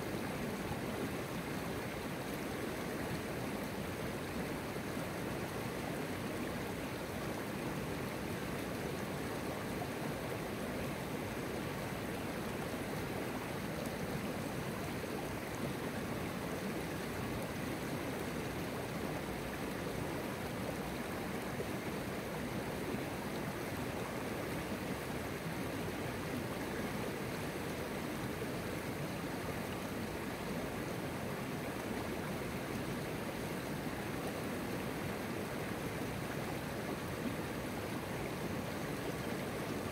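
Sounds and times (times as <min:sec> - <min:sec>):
river flowing over shallow bed: 0:00.0 - 0:39.9.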